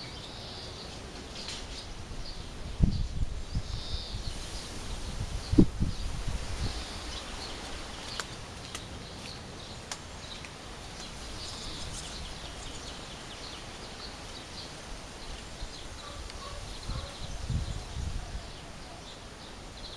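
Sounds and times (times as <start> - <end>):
swallows twittering: 9.0 - 19.9.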